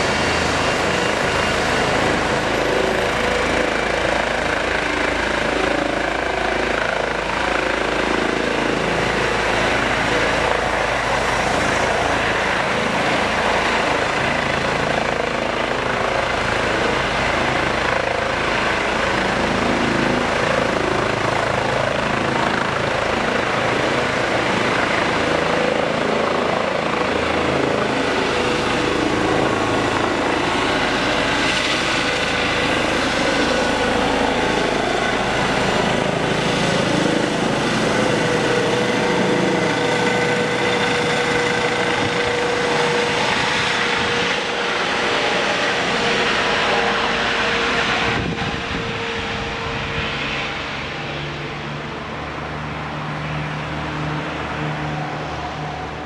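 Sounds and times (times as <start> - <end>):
helicopter rotors and turbines: 0.0 - 56.0
high turbine whine: 0.0 - 56.0.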